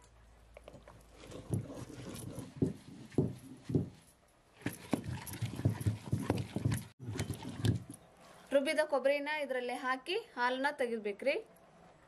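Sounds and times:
grinding thuds and scraping: 0.8 - 4.0, 4.6 - 8.0.

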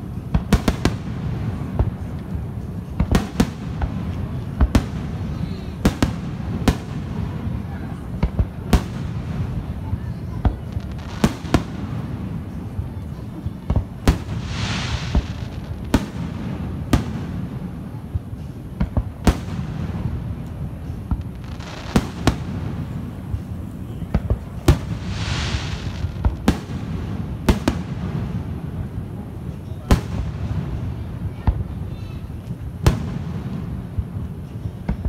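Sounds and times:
fireworks crackling: 0.0 - 35.0
fireworks booming: 13.4 - 23.5, 24.1 - 29.2.

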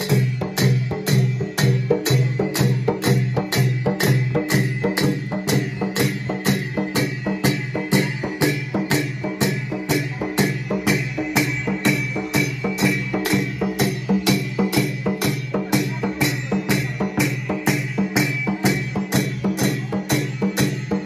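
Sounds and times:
barrel drum beating: 0.0 - 21.0
festive folk music: 0.0 - 21.0.

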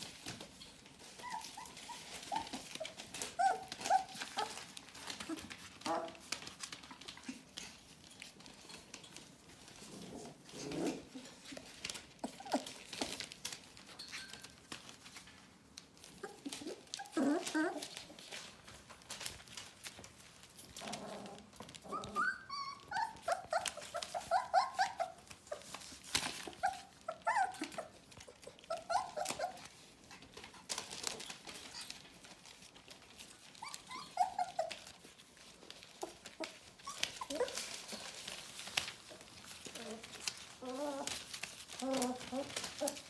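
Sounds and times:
rustling on newspaper: 0.0 - 43.0
puppies whimpering: 1.0 - 6.2, 16.2 - 18.4, 21.3 - 29.8, 33.4 - 43.0.

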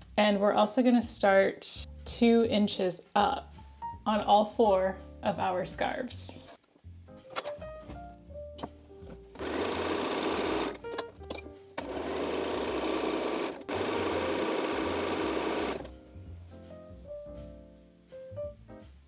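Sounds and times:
sewing machine stitching: 9.3 - 11.1, 11.8 - 15.9.

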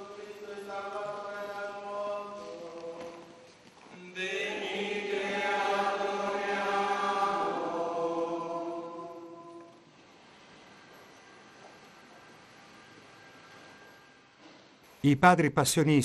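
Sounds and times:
voices singing a slow chant: 0.0 - 10.0.

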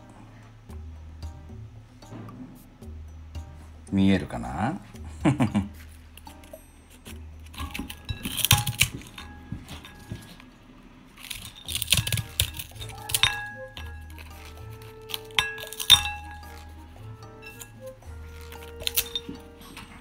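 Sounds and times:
faint background music: 0.0 - 20.0
dog chew cracking under shears: 11.2 - 16.8, 17.5 - 20.0
shear blades knocking ceramic bowl: 11.2 - 20.0.

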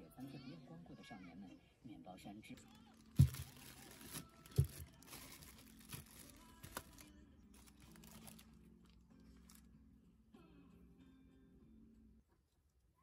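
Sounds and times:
faint low hum: 0.0 - 13.0
plastic bag crinkling: 2.5 - 9.7.

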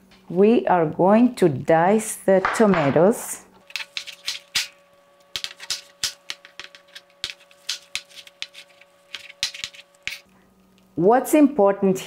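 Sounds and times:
knife chopping on cutting board: 5.3 - 10.2.

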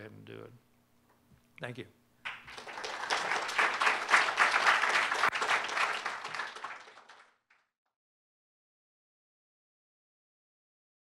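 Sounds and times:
audience applauding: 2.2 - 7.6.

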